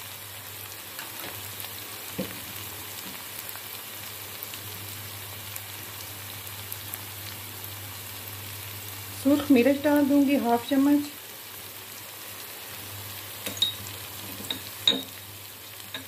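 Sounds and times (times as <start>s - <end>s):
onions frying in oil: 0.0s - 16.0s.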